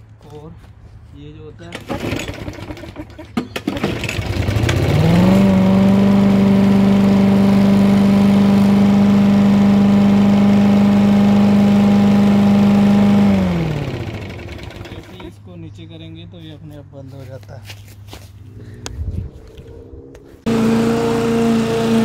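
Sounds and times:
lawn mower engine running: 1.7 - 15.4, 20.5 - 22.0.

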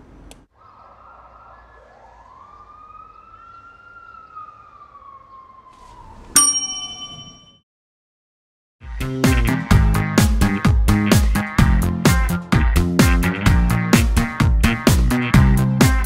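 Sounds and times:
faint street hum: 0.0 - 6.8
siren wailing: 0.5 - 6.4
loud bell-like ding: 6.4 - 7.6.

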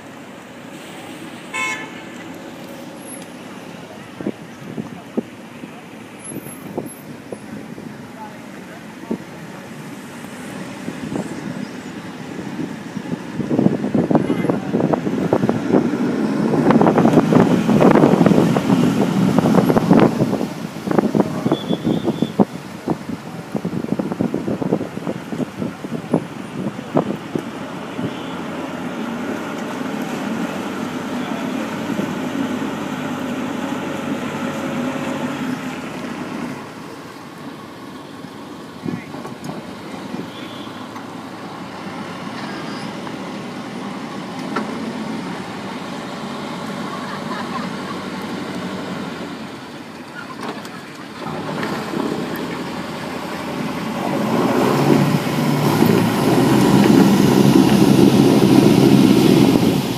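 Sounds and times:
engine running: 0.0 - 59.9
wind noise: 10.0 - 28.2, 53.8 - 59.9.

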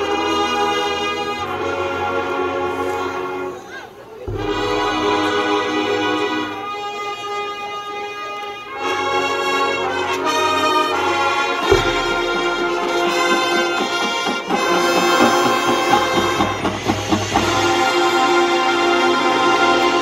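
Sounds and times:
marching band brass chords: 0.0 - 20.0
deep low drum hit: 4.3 - 6.4, 11.6 - 18.1.

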